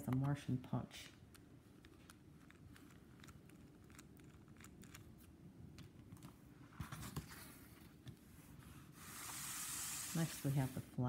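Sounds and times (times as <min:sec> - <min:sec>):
small plastic clicks: 0:01.1 - 0:06.3.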